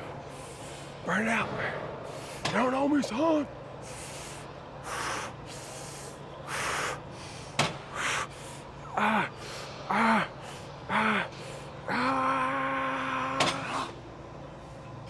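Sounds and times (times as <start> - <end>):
man breathing hard: 3.8 - 12.0
man grunting: 8.9 - 10.3, 10.9 - 13.9.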